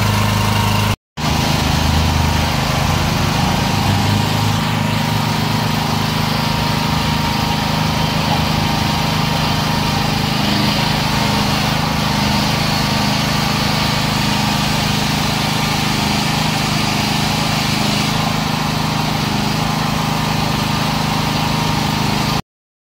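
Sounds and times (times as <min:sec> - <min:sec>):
generator engine running: 0:00.0 - 0:22.4.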